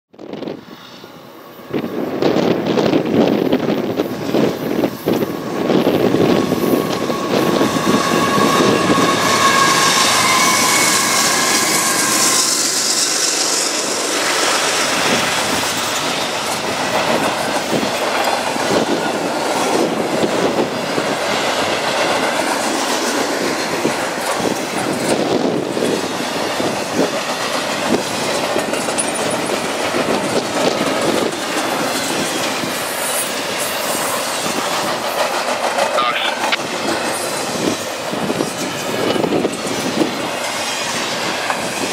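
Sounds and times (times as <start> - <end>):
train wheels rumbling on rail: 0.1 - 41.9
high wheel squeal: 4.8 - 16.8.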